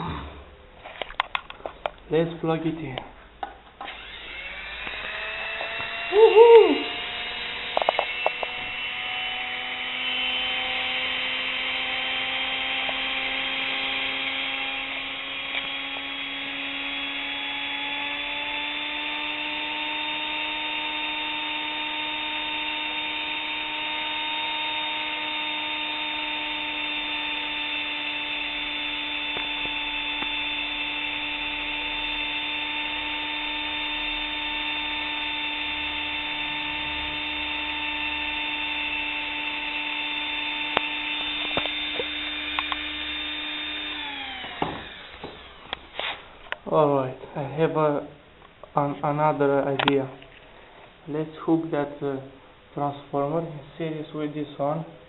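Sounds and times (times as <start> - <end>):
electric motor whine: 3.8 - 46.6.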